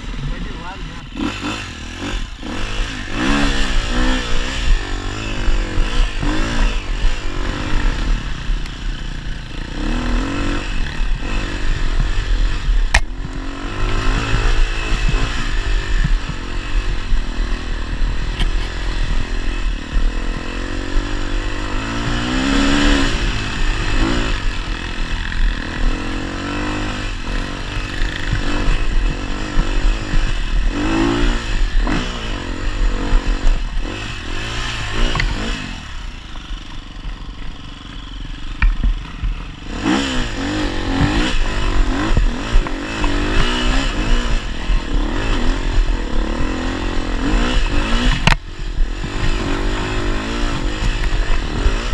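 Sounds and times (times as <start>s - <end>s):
dirt bike engine revving: 0.0s - 51.9s.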